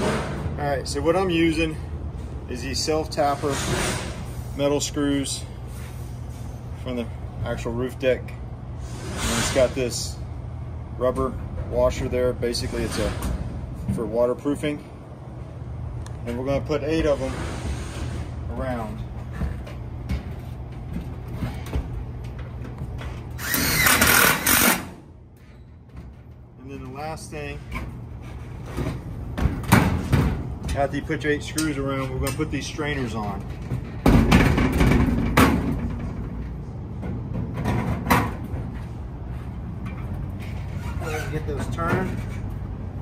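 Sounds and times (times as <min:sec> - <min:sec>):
cordless drill driving screw: 0:23.4 - 0:24.9.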